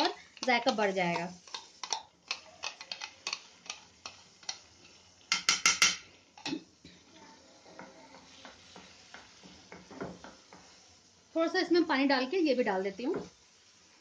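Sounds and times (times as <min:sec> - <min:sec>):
wooden spatula scraping a pan: 0:00.0 - 0:14.0
spoon knocking on pan: 0:05.3 - 0:06.6, 0:07.7 - 0:10.8.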